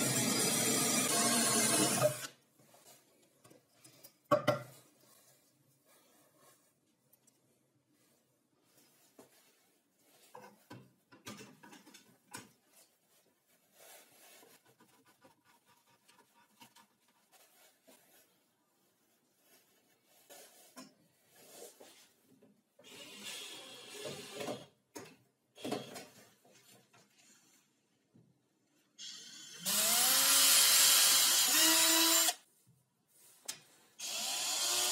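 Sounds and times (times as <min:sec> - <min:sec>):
rubbing and scraping: 0:04.8 - 0:22.4.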